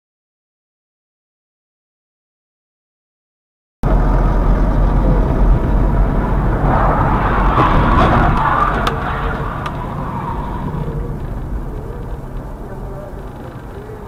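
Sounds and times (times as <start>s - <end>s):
engine and tyre rumble: 3.8s - 14.0s.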